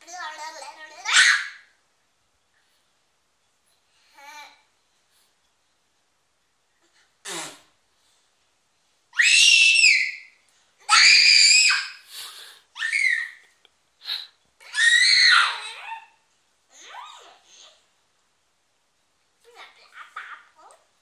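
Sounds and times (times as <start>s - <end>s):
children screaming in play: 9.2s - 12.1s, 12.8s - 13.5s, 14.6s - 16.2s.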